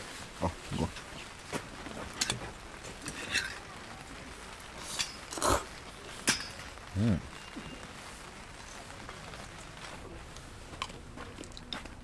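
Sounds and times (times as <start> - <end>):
person slurping: 5.3 - 5.7.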